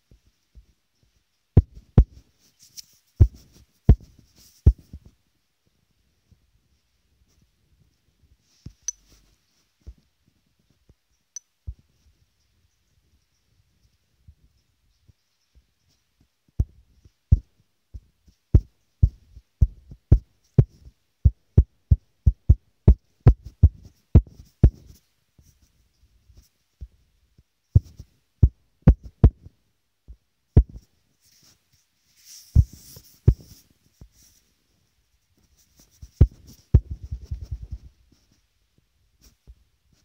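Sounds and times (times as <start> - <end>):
soft hiss: 0.0 - 40.0
fingertip taps on touchscreen: 32.6 - 33.5.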